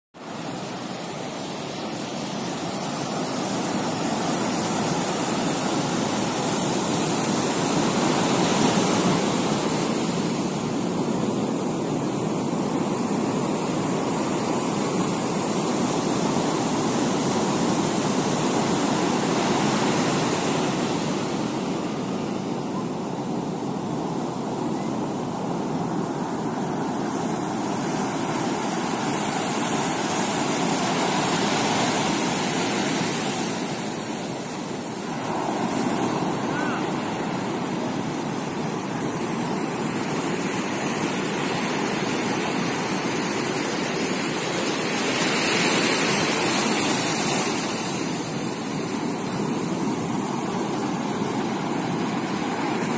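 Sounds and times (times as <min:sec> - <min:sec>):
sea waves breaking on a beach: 0:00.2 - 0:52.9.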